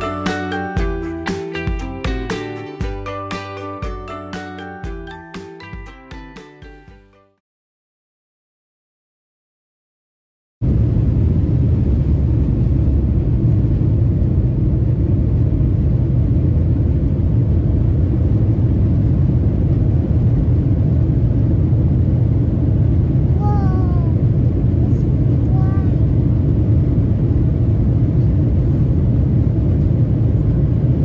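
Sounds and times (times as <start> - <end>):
jet engines deep rumble: 10.6 - 31.0.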